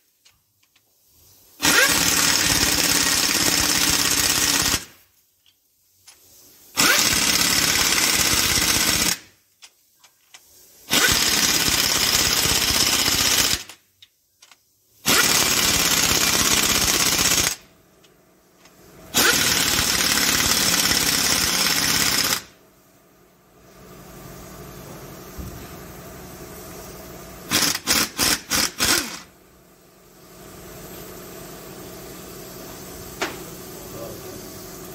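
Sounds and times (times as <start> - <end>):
pneumatic impact wrench hammering: 1.6 - 5.0, 6.1 - 17.7, 18.6 - 22.6, 27.5 - 29.3, 33.1 - 33.5.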